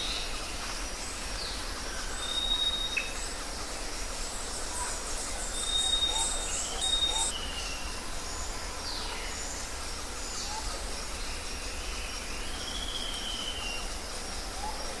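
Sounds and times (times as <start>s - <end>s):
small birds whistling and chirping: 1.4s - 3.2s, 4.7s - 13.9s.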